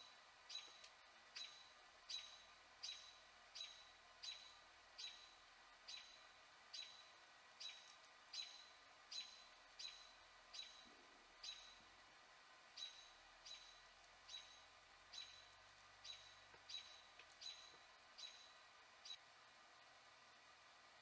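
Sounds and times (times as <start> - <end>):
faint high animal chirp: 6.8 - 11.8, 12.8 - 19.2.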